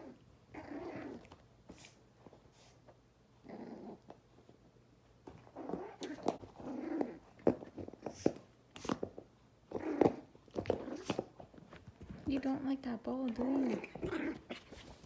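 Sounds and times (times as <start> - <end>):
puppy play-growling: 0.0 - 2.0, 3.4 - 12.3, 13.3 - 15.0
puppy snuffling: 13.3 - 15.0.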